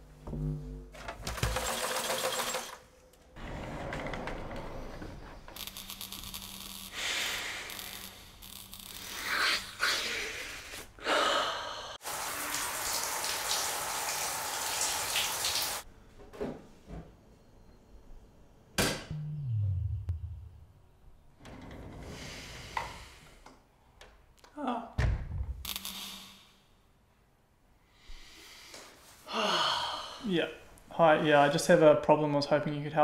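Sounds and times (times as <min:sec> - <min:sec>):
shower water hissing: 0:12.0 - 0:15.8
low steady hum: 0:19.0 - 0:21.2.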